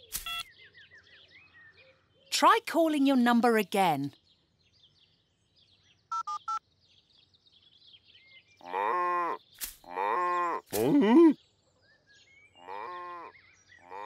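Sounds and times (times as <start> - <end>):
mobile phone dialling beeps: 0.2 - 0.5, 6.1 - 6.6
farm animal bleating: 12.6 - 14.0.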